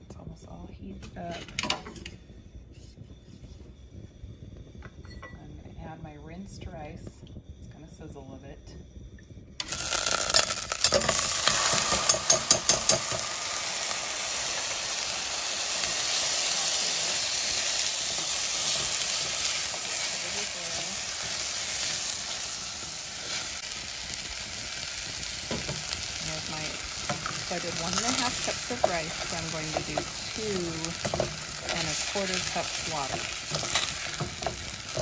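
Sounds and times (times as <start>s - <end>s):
rice sizzling in hot oil: 9.6s - 35.0s.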